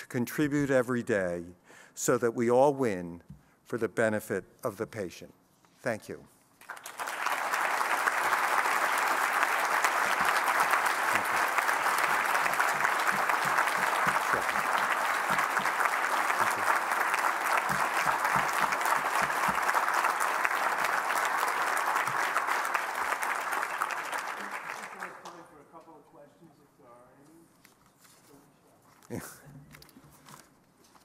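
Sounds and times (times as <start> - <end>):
crowd clapping: 6.6 - 25.6.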